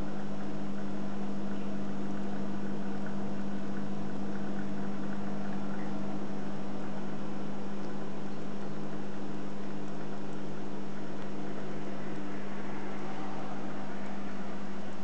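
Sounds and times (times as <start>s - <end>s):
aquarium equipment hum: 0.0s - 15.0s
bubbling and trickling water: 0.0s - 15.0s
pump motor drone: 0.0s - 15.0s.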